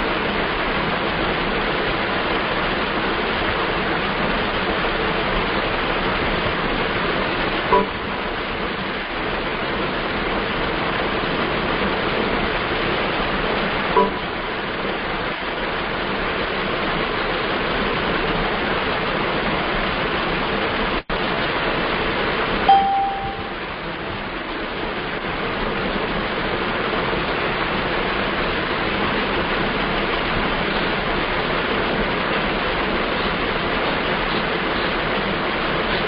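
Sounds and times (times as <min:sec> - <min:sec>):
steady rushing noise: 0:00.0 - 0:36.0
short high beep: 0:07.7 - 0:08.0, 0:14.0 - 0:14.3, 0:22.7 - 0:23.6.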